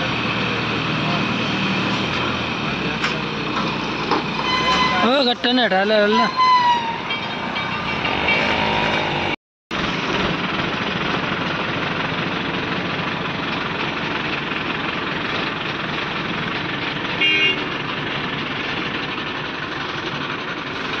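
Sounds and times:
crane diesel engine running: 0:00.0 - 0:21.0
vehicle horn toot: 0:04.4 - 0:05.3, 0:17.2 - 0:17.7.

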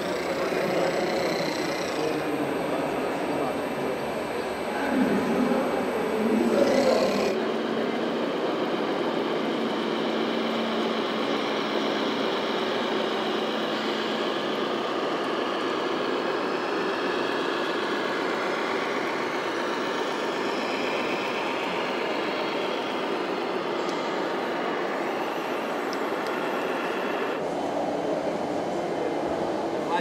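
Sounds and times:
model truck diesel engine sound: 0:00.0 - 0:27.4
steady hum: 0:00.0 - 0:30.0.

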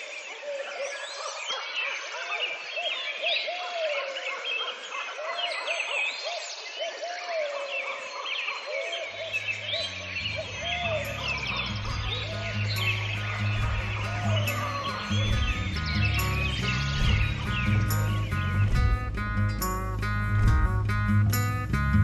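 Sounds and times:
songbirds singing: 0:00.0 - 0:22.0
music with low bass: 0:09.6 - 0:22.0.

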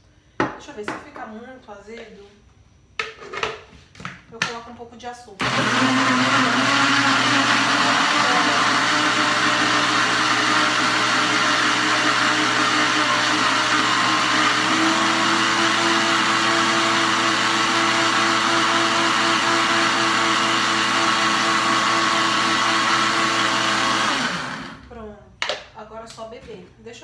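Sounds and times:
blender running: 0:05.4 - 0:24.9.

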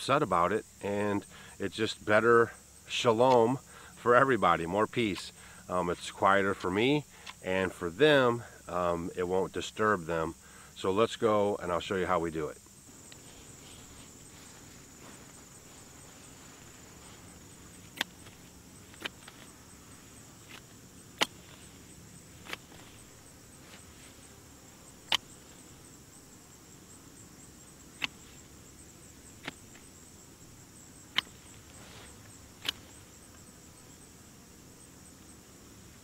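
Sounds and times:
hand shears snipping stems: 0:16.5 - 0:19.6, 0:20.3 - 0:21.8, 0:22.4 - 0:23.9, 0:28.0 - 0:28.4, 0:29.4 - 0:29.8, 0:31.1 - 0:33.0.

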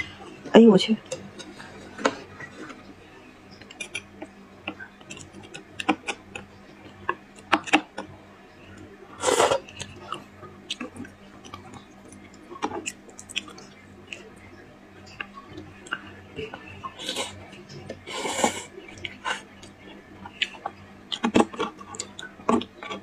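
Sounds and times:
lip smacks and chewing: 0:10.7 - 0:14.3.

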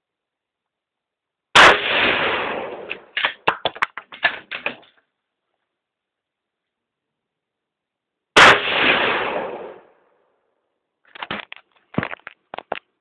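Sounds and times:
rifle shot: 0:01.6 - 0:03.5, 0:08.4 - 0:10.0
clicks and clatter: 0:02.9 - 0:05.1, 0:11.0 - 0:13.0.

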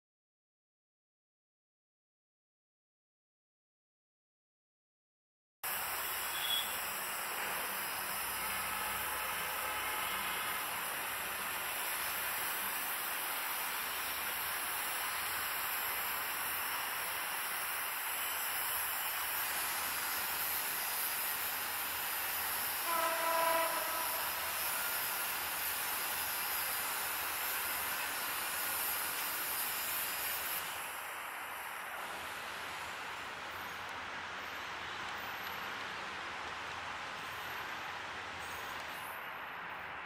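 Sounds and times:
distant train hiss: 0:05.6 - 0:40.0
diesel locomotive horn blast: 0:06.2 - 0:06.8, 0:08.3 - 0:10.7, 0:22.8 - 0:25.5.

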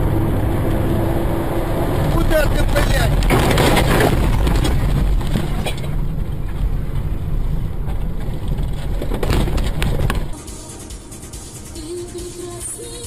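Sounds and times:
truck passing: 0:00.0 - 0:10.3
car cabin road noise: 0:00.0 - 0:10.4.

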